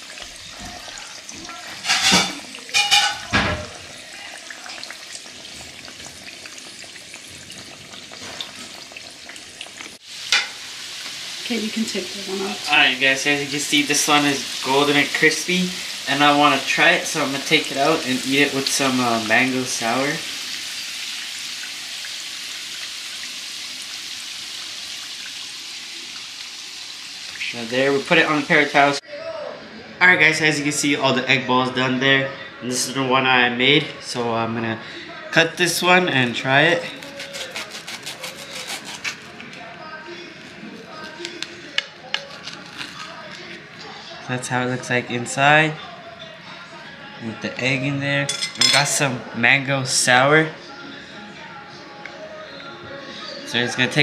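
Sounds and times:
food deep-frying in hot oil: 0:00.0 - 0:29.0.

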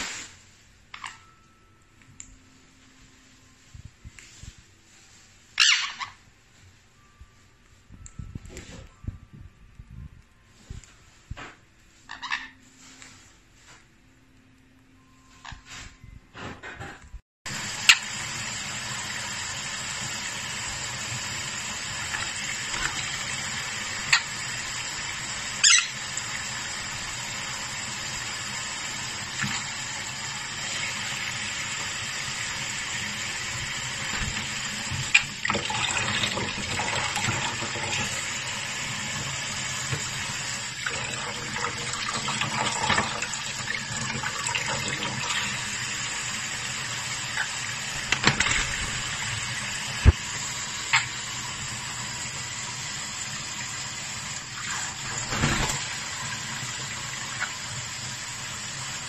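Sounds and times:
tap water splashing on metal sink: 0:48.0 - 0:48.9.

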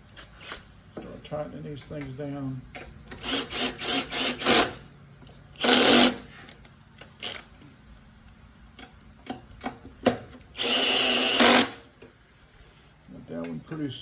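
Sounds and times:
cordless drill motor running: 0:03.2 - 0:04.8, 0:05.6 - 0:06.2, 0:10.5 - 0:11.8.

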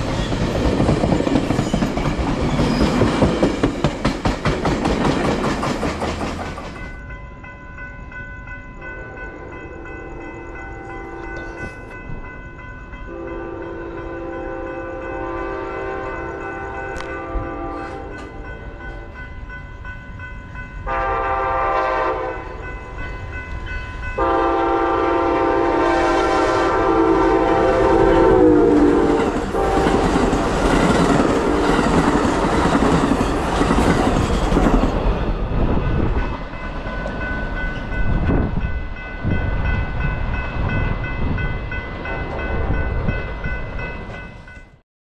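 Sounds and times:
wheels clicking over rail joints: 0:00.0 - 0:07.1
train rushing past rattling: 0:00.0 - 0:44.8
crossing bell ringing: 0:06.5 - 0:44.8
train horn blasts: 0:13.0 - 0:19.0, 0:20.8 - 0:23.0, 0:24.1 - 0:30.4.

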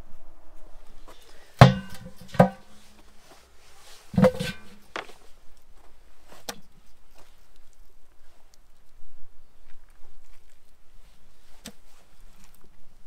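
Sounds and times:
meat knocking enamel pot: 0:01.6 - 0:02.7, 0:04.2 - 0:04.8.

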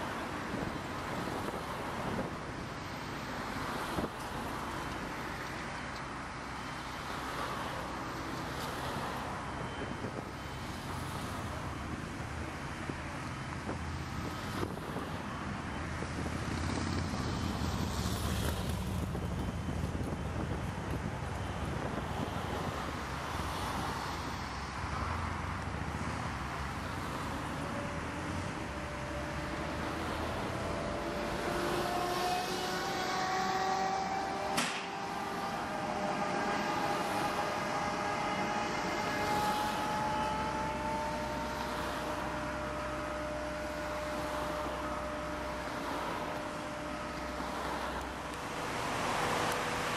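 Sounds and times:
crane diesel engine rumbling: 0:00.0 - 0:49.9
wind buffeting microphone: 0:11.8 - 0:24.0.

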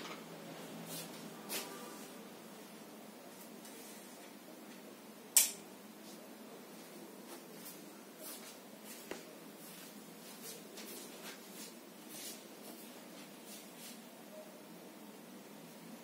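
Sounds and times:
soft rustles: 0:06.0 - 0:14.1.

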